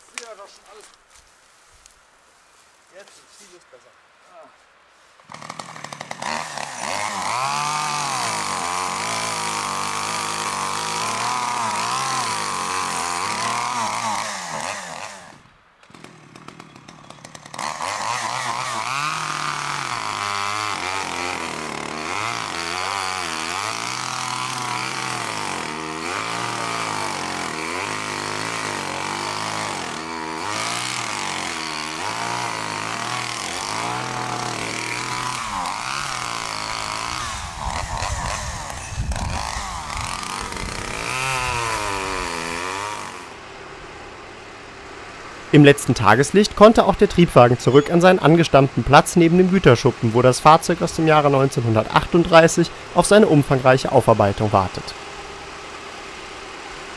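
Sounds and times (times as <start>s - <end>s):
chainsaw cutting wood: 5.2s - 43.4s.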